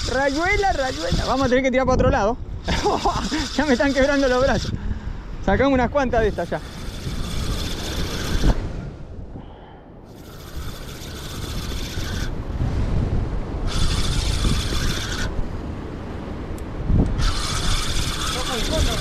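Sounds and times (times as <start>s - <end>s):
fishing reel gears whirring: 0.0s - 1.7s, 2.6s - 4.8s, 6.2s - 8.6s, 10.1s - 12.4s, 13.7s - 15.3s, 17.2s - 19.0s
wind and surf rushing: 0.0s - 19.0s.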